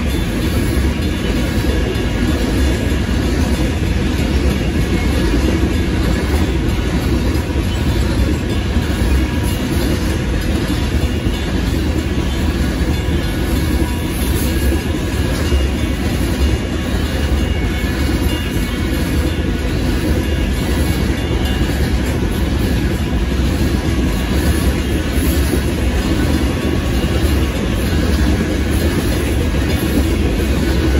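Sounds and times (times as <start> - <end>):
freight train rolling past: 0.0 - 30.9
steel wheels on rails: 0.0 - 30.9.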